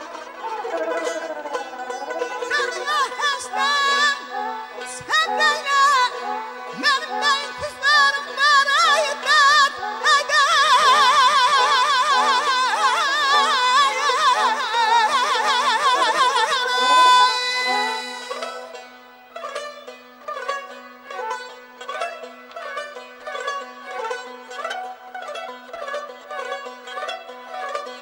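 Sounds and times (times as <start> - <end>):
plucked lute and bowed fiddle: 0.0 - 28.0
man singing with trilled ornaments: 2.4 - 18.7.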